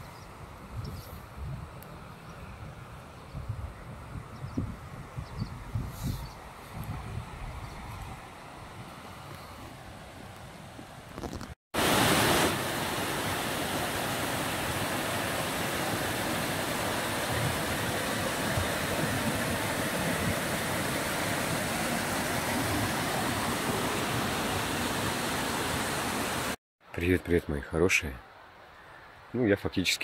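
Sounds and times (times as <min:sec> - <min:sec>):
stream rushing over rocks: 0:11.8 - 0:26.6.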